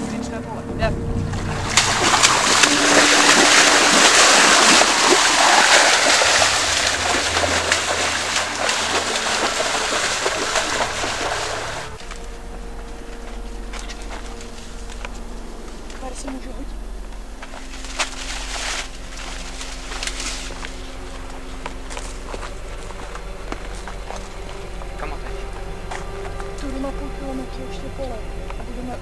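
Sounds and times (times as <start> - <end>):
steady low hum: 0.0 - 29.0
person wading through stream splashing: 1.3 - 12.2, 17.5 - 24.6.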